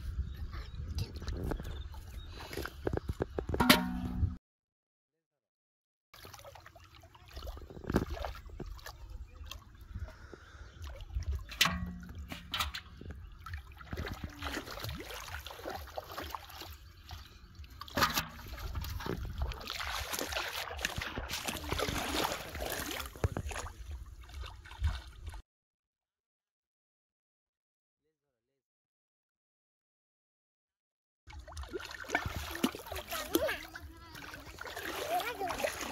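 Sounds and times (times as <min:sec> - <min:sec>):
shallow water splashing: 0:06.2 - 0:25.4, 0:31.3 - 0:35.9.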